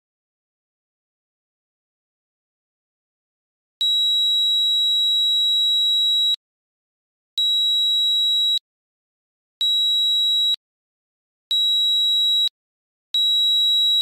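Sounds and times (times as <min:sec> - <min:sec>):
high-pitched alarm buzzer beeps: 0:03.8 - 0:06.4, 0:07.4 - 0:08.6, 0:09.6 - 0:10.6, 0:11.5 - 0:12.6, 0:13.2 - 0:14.0.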